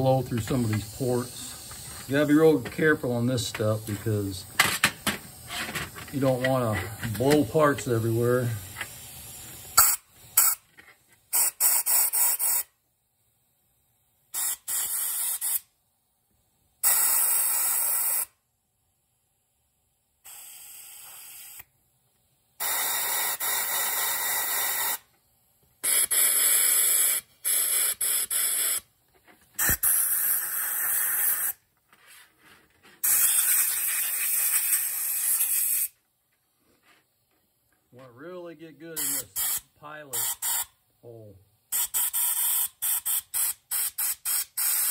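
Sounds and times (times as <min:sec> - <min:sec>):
compressed air blasts: 0:00.0 - 0:10.7, 0:11.3 - 0:12.8, 0:14.3 - 0:15.7, 0:16.8 - 0:18.4, 0:20.2 - 0:21.8, 0:22.6 - 0:25.1, 0:25.8 - 0:28.9, 0:29.5 - 0:36.0, 0:38.8 - 0:40.8, 0:41.7 - 0:44.9.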